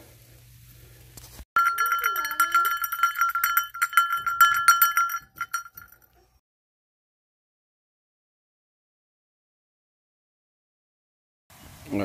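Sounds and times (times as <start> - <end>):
bell jingling and ringing: 1.6 - 6.2.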